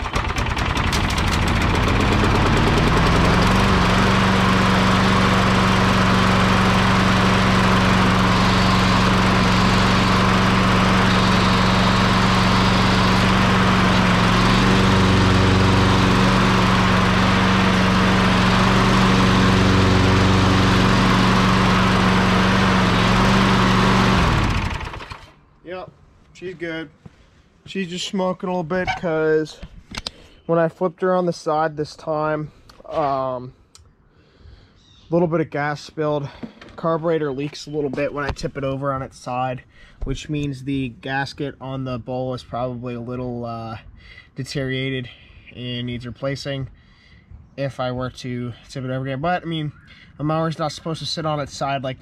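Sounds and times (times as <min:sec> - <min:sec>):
lawn mower engine running: 0:00.0 - 0:25.4.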